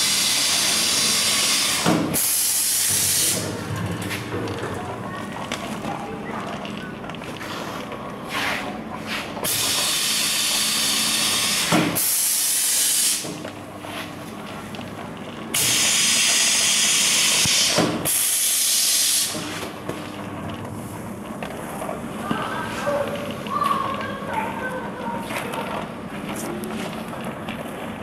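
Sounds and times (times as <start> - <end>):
packing machine running: 0.0 - 28.0
air hissing: 0.2 - 3.6, 9.2 - 13.4, 15.6 - 19.6.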